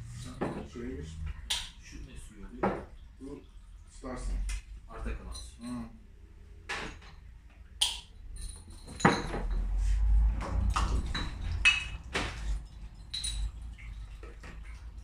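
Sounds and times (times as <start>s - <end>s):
low handling rumble: 0.0s - 2.4s
bottling gear clinking: 5.0s - 6.0s, 8.1s - 9.8s, 10.6s - 14.0s.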